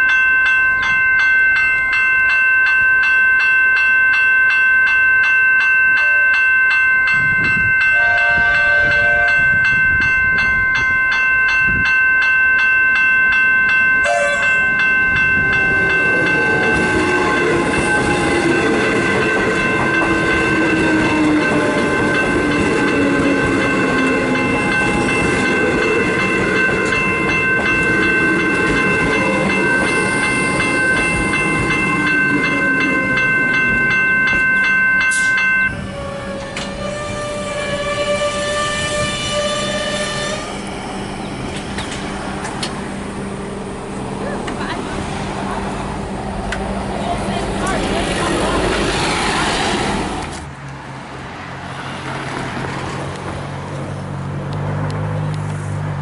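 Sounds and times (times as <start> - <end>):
level crossing bells ringing: 0.0 - 41.6
falling train whine: 0.0 - 50.5
train rumble: 0.0 - 56.0.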